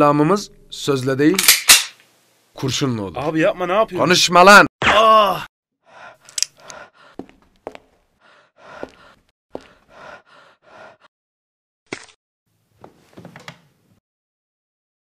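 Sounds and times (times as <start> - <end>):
man gasping and breathing hard: 5.9 - 7.4, 8.2 - 11.1.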